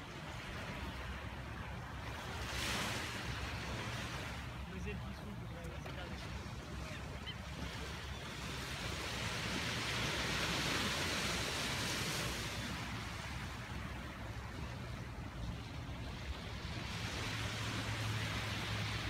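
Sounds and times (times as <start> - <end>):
small waves breaking on beach: 0.0 - 19.0.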